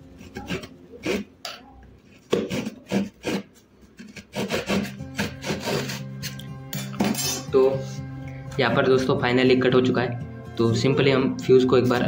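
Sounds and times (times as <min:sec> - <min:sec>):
hacksaw sawing through casing: 0:02.3 - 0:06.4
background music with low notes: 0:04.4 - 0:12.0.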